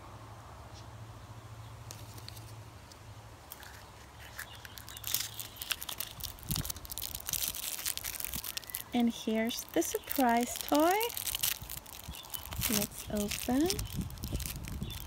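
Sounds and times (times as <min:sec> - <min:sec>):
plastic wrapper crinkling: 0:03.5 - 0:15.0.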